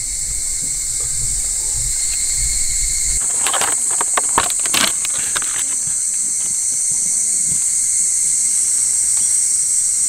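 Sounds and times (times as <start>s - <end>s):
high-pitched insect chorus: 0.0s - 10.0s
plastic food pack crinkling: 3.2s - 6.5s.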